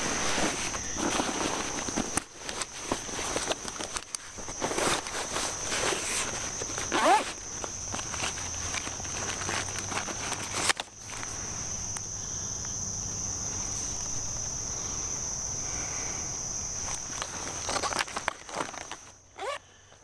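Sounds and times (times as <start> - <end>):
fabric pouch and packaging rustling: 0.0 - 11.4, 16.8 - 19.8
insects singing: 0.0 - 20.0.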